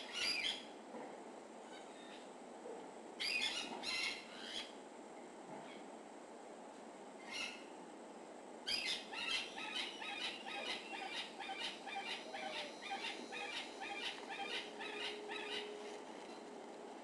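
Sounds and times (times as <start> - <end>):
marmoset high-pitched calls: 0.0 - 0.7, 3.2 - 4.7, 7.2 - 7.7, 8.7 - 15.7.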